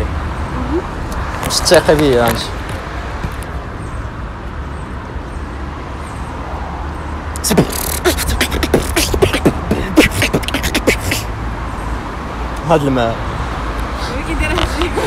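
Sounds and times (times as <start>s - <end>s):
traffic hum: 0.0s - 15.0s
beatboxing: 7.3s - 11.4s, 14.4s - 15.0s.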